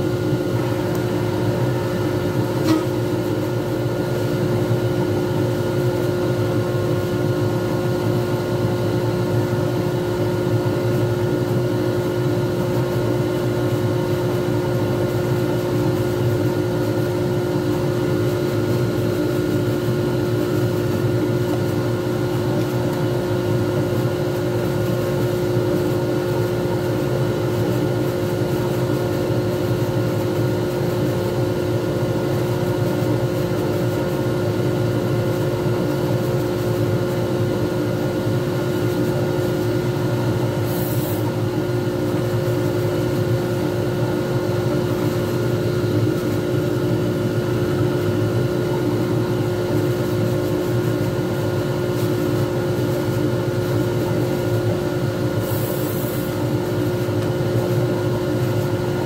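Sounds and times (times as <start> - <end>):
brief high hiss: 40.6 - 41.3, 55.4 - 56.3.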